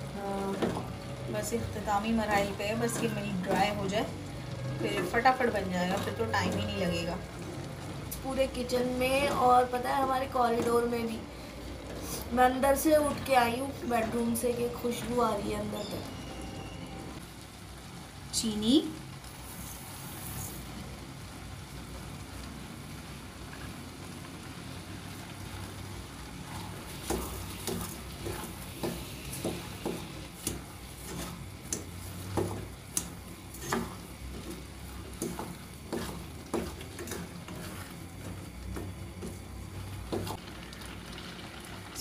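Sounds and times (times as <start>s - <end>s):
carrots sizzling in a pan: 0.0s - 42.0s
wooden spatula scraping a pan: 26.3s - 40.4s.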